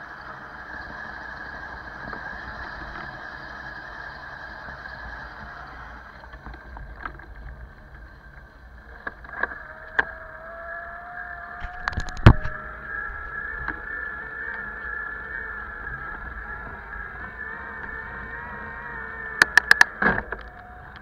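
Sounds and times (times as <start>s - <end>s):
bicycle rolling on rough asphalt: 0.0s - 21.0s
high whine: 0.0s - 21.0s
bicycle knocking and rattling: 4.6s - 10.8s, 11.5s - 18.4s.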